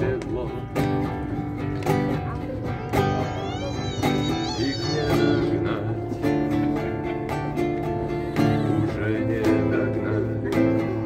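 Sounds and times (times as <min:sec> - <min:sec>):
man singing: 0:00.0 - 0:01.2, 0:03.4 - 0:11.0
strummed acoustic guitar: 0:00.0 - 0:11.0.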